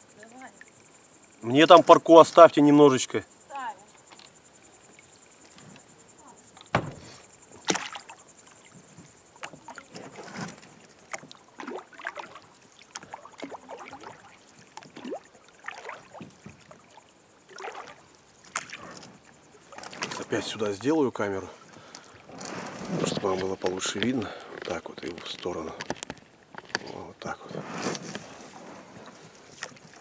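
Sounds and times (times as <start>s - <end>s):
faint high insect chirping: 0.0s - 30.0s
oars knocking and splashing: 6.5s - 30.0s.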